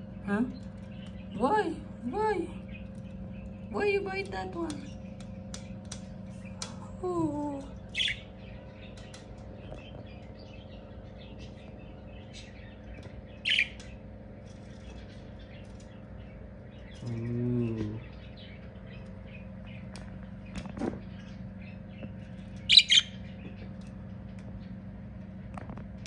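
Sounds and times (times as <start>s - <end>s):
steady low background hum: 0.0s - 26.0s
budgerigars chirping: 7.9s - 14.0s, 21.1s - 23.7s.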